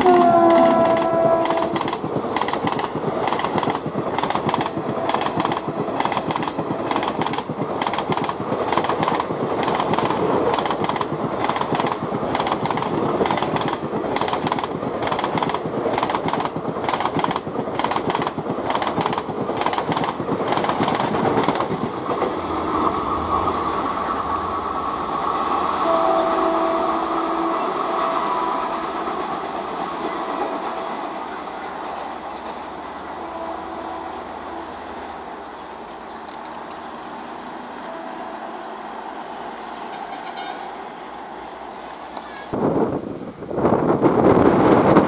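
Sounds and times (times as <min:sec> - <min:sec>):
locomotive horn blasts: 0:00.0 - 0:01.9, 0:25.8 - 0:29.2, 0:33.0 - 0:35.0, 0:39.8 - 0:40.8
train wheels clacking over joints: 0:00.0 - 0:22.5
train rumble: 0:00.0 - 0:45.0.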